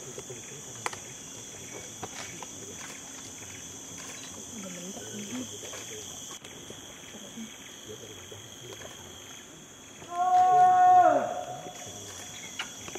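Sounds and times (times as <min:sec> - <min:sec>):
high insect drone: 0:00.0 - 0:12.9
animal call: 0:10.0 - 0:11.8.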